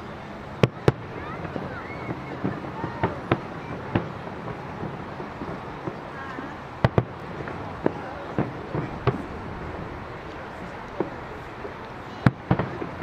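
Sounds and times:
fireworks booming and popping: 0:06.8 - 0:13.0.

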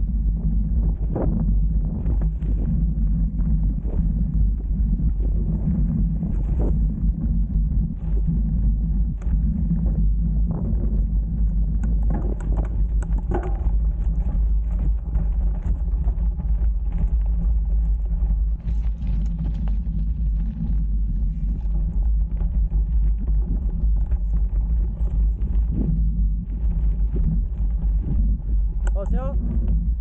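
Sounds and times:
tyres rumbling on dirt trail: 0:00.0 - 0:30.0
wind on microphone: 0:00.0 - 0:30.0
bike knocking and rattling: 0:11.8 - 0:15.9.

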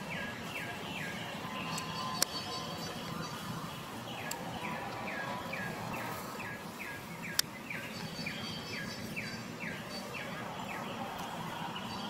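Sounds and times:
outdoor background noise: 0:00.0 - 0:12.0.

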